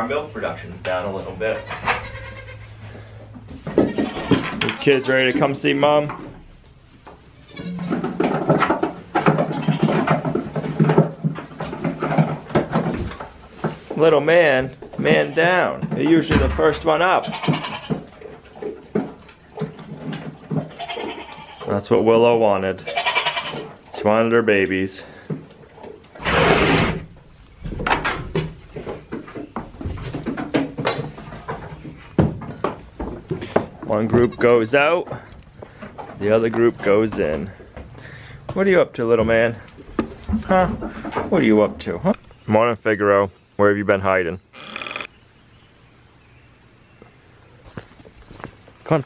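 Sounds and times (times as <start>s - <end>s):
hooves knocking on wooden boards: 3.2s - 6.4s, 7.0s - 21.7s, 24.5s - 42.3s
wooden door scraping open: 26.2s - 27.2s.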